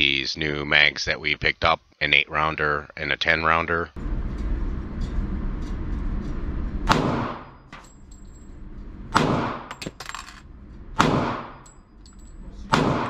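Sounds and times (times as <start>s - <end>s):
low steady rumble: 3.9s - 13.0s
pistol shots ringing indoors: 6.9s - 7.9s, 9.1s - 13.0s.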